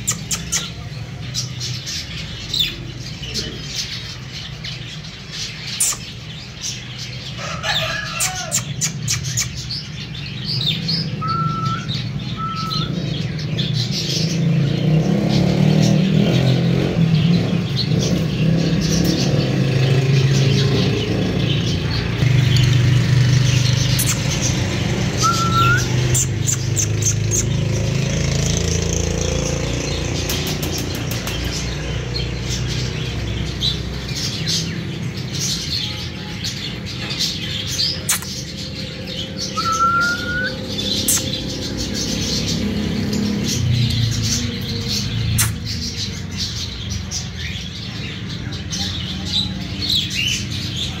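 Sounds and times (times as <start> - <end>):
caged birds chirping: 0.0 - 51.0
cockatiel chirping: 11.2 - 12.9, 25.2 - 26.9, 39.6 - 41.3
sharp click: 38.1 - 38.4, 41.1 - 41.4.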